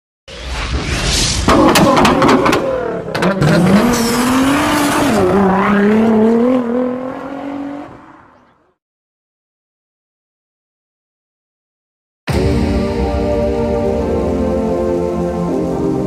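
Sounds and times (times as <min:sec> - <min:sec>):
car engine revving: 0:01.5 - 0:08.1.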